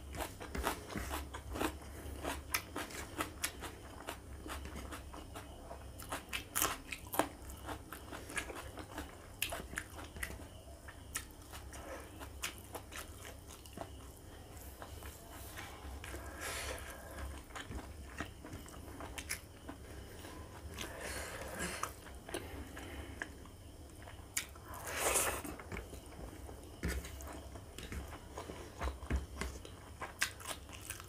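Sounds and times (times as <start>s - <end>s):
mouth chewing food: 0.0s - 31.0s.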